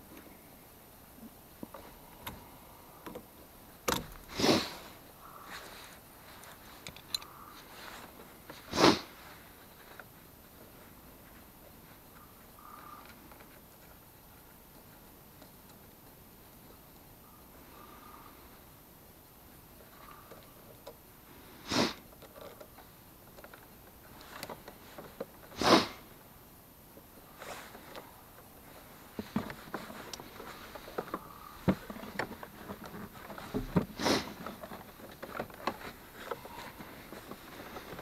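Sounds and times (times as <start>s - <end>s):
handling clicks and knocks: 1.5s - 4.3s, 6.4s - 7.4s, 26.9s - 38.0s
person sniffing: 4.3s - 5.9s, 8.6s - 9.2s, 21.5s - 22.0s, 25.5s - 26.1s, 34.0s - 34.5s.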